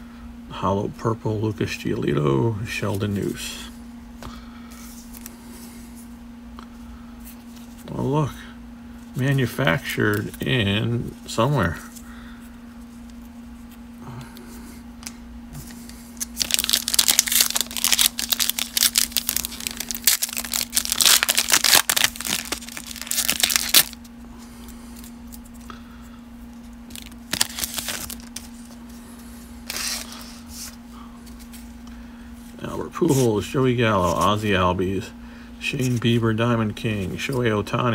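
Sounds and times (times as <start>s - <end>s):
steady low hum: 0.0s - 37.9s
foil wrapper tearing and crinkling: 16.2s - 24.0s, 26.9s - 28.8s.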